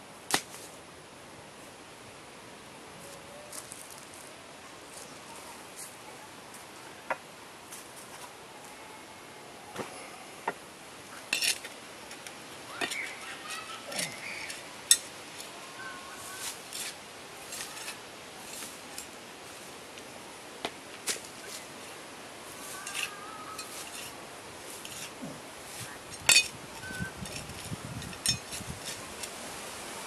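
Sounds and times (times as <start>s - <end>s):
trowel scraping in soil: 16.2s - 19.7s, 22.5s - 29.4s.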